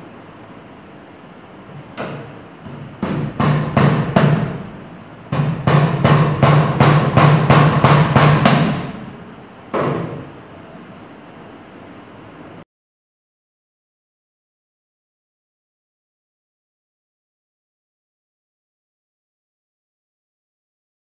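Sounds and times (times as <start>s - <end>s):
hammer striking wooden dowel: 2.0s - 4.7s, 5.3s - 9.0s, 9.7s - 10.3s.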